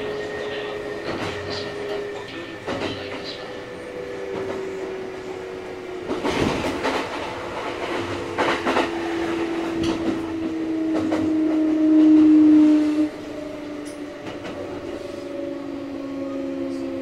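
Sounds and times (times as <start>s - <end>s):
electric train inverter whine: 0.0s - 17.0s
train wheels clattering over rail joints: 6.0s - 11.7s.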